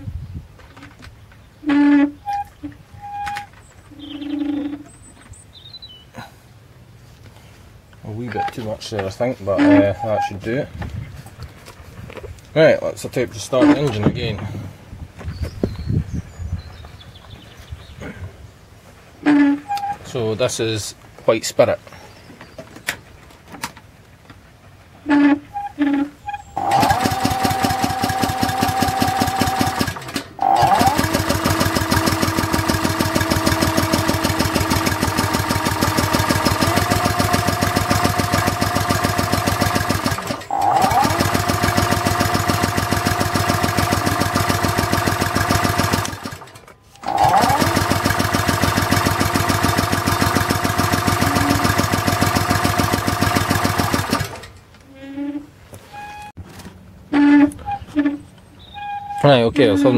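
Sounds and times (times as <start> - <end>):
engine sputters: 26.6 - 54.6
small petrol engine running: 26.6 - 54.6.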